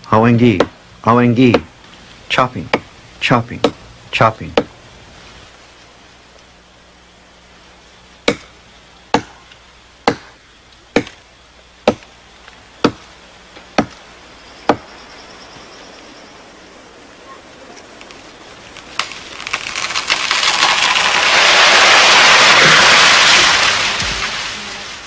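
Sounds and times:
axe chopping tree trunk: 0:08.2 - 0:09.4, 0:10.0 - 0:11.2, 0:11.8 - 0:12.1, 0:12.8 - 0:13.0, 0:13.7 - 0:14.0.

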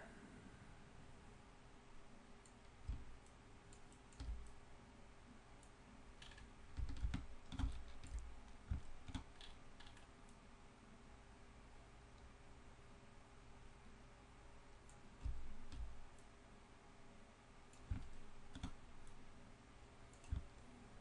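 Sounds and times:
faint steady hum: 0:00.0 - 0:21.0
computer mouse and keyboard clicks: 0:02.4 - 0:04.6, 0:06.2 - 0:10.1, 0:14.9 - 0:16.3, 0:17.7 - 0:19.2, 0:20.1 - 0:20.7.

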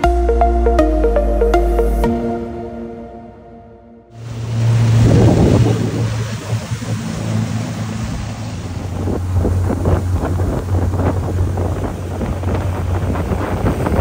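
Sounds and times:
boat engine droning: 0:00.0 - 0:14.0
water rushing past hull: 0:04.1 - 0:14.0
wind buffeting microphone: 0:04.2 - 0:14.0.

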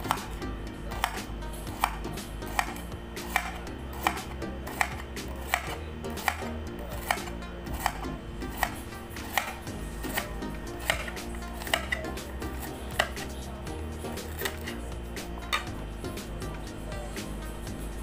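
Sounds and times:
knife slicing cucumber: 0:00.9 - 0:13.4, 0:14.2 - 0:14.8.

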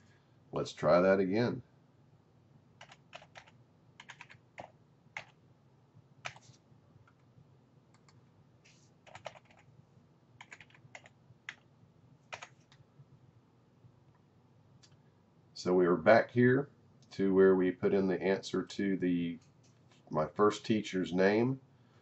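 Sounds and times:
faint keyboard keystrokes: 0:06.2 - 0:07.3, 0:09.0 - 0:09.7, 0:10.4 - 0:11.7.

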